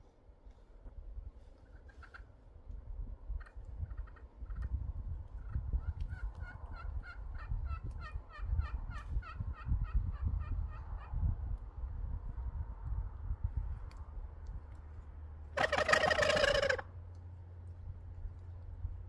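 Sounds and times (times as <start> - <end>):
wild turkey yelping: 1.7 - 2.3, 15.6 - 16.9.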